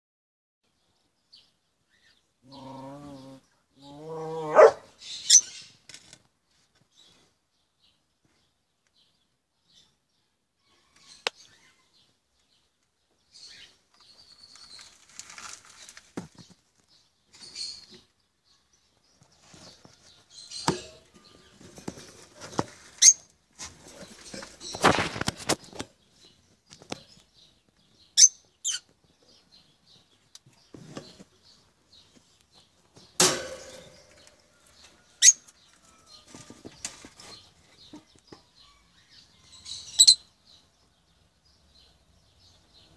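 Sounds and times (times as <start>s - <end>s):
lovebirds chirping shrilly: 4.6s - 5.8s, 23.0s - 23.3s, 28.1s - 28.9s, 38.6s - 40.3s
noisy rustling: 19.2s - 27.2s.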